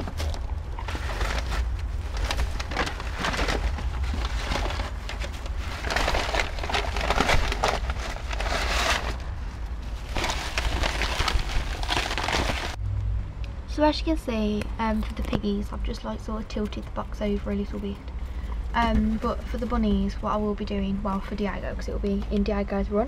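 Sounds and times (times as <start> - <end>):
hay rustling: 0.0 - 12.8
paper bag crinkling: 0.0 - 12.8
low rumble: 0.0 - 14.9.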